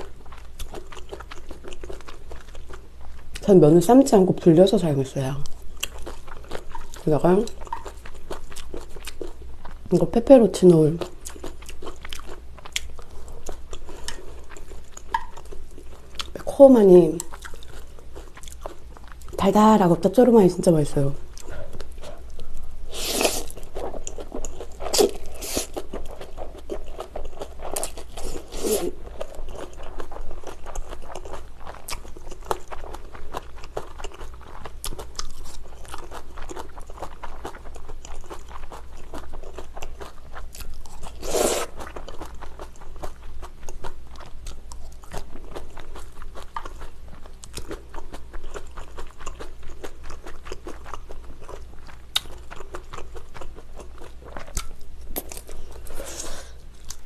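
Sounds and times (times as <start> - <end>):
wet chewing of noodles: 0.0 - 3.5, 5.4 - 9.9, 11.0 - 16.6, 17.2 - 19.4, 21.1 - 57.0
noodle slurp: 22.9 - 23.6, 41.2 - 41.8.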